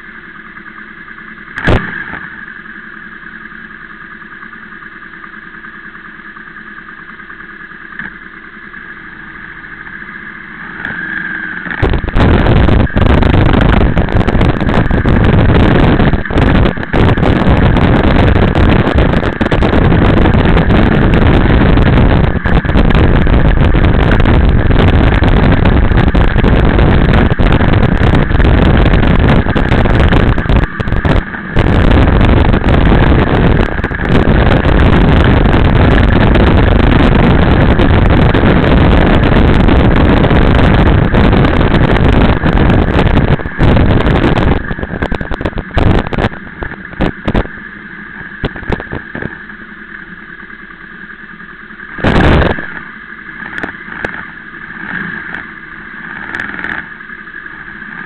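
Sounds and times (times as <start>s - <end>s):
motorcycle engine idling: 0.0s - 58.0s
wind noise on microphone: 1.6s - 2.4s, 10.8s - 49.5s, 51.9s - 57.0s.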